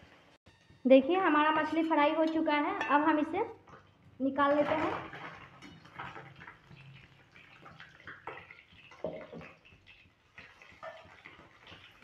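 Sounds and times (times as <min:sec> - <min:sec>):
fish sizzling in hot oil: 0:05.5 - 0:12.0.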